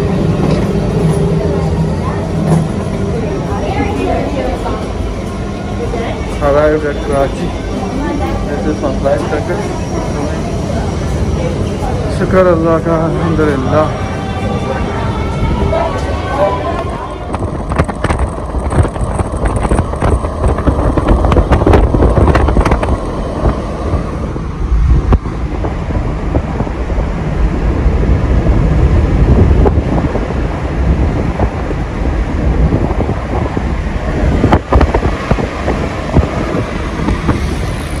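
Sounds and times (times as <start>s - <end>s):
wind rumble on microphone: 10.8s - 38.0s.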